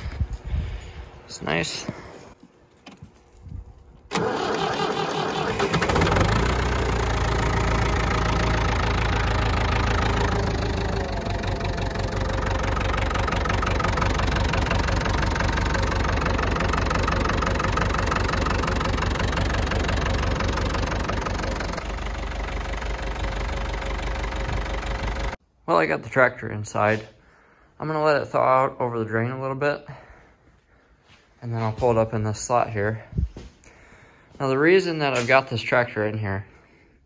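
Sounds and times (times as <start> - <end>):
tractor diesel engine idling: 4.1 - 25.4.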